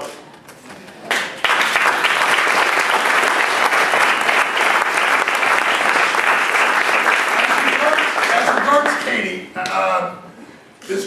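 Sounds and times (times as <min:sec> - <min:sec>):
audience applauding: 0:01.1 - 0:09.2.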